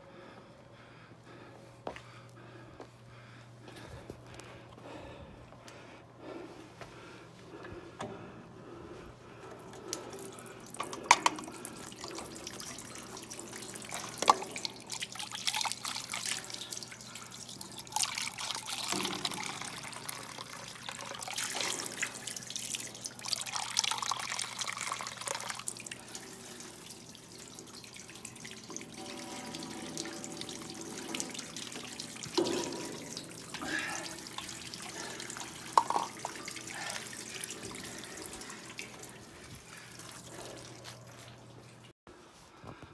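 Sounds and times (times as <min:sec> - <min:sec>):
water splashing into metal trough: 0:10.0 - 0:39.4.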